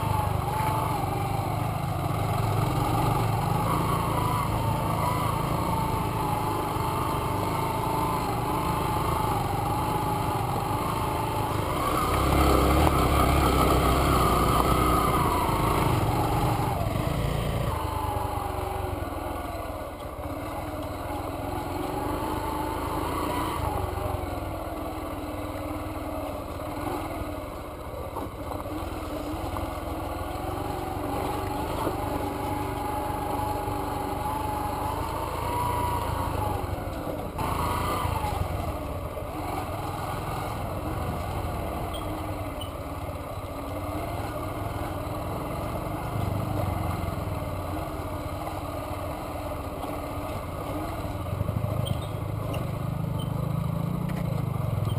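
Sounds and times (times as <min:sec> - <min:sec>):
motorcycle engine revving: 0:00.0 - 0:54.9.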